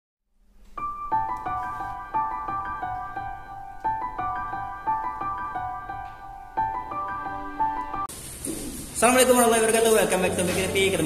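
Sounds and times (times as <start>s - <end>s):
bright intro melody: 0.7s - 8.2s.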